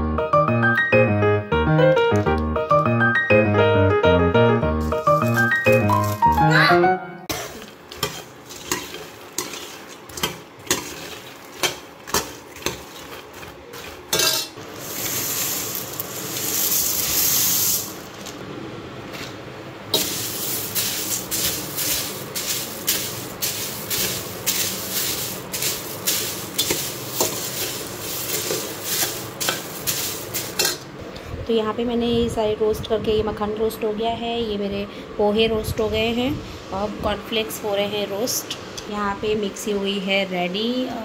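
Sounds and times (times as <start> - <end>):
flakes rustling and sizzling: 4.8 - 6.4, 7.3 - 18.4, 19.9 - 30.8
metal spatula scraping wok: 7.3 - 18.0, 20.0 - 30.8.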